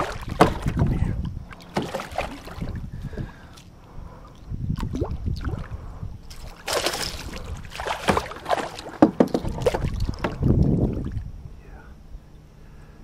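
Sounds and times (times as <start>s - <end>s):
knocks on kayak: 0.3s - 0.8s, 8.0s - 10.5s
fish splashing at water surface: 1.6s - 2.8s, 6.3s - 10.4s.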